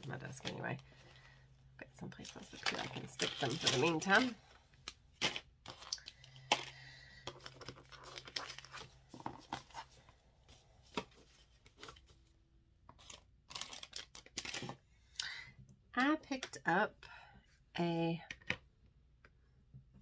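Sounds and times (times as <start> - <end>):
packaging rustling and crinkling: 2.2 - 10.1, 13.0 - 14.8.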